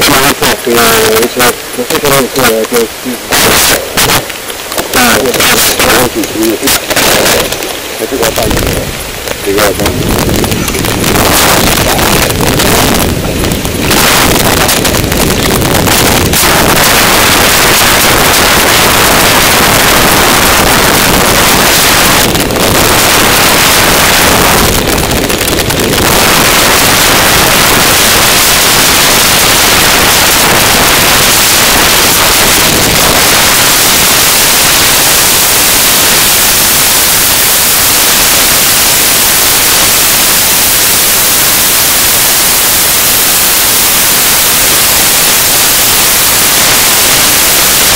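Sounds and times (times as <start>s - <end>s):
wind buffeting microphone: 3.2s - 47.9s.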